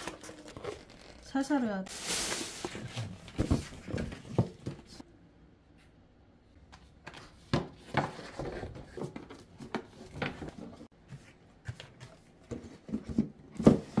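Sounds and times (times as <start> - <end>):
packets rustling and knocking: 0.0 - 1.2, 1.9 - 5.0.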